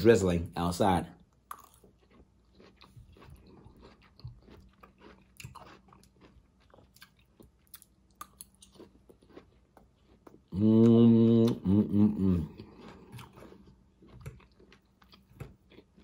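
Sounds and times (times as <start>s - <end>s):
close-up chewing: 1.3s - 16.0s
person humming: 10.5s - 12.6s.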